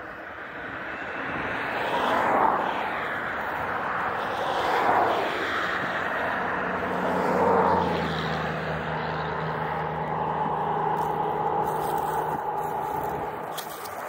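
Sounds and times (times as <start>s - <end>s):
low engine hum: 0.0s - 14.0s
road traffic passing: 0.0s - 14.0s.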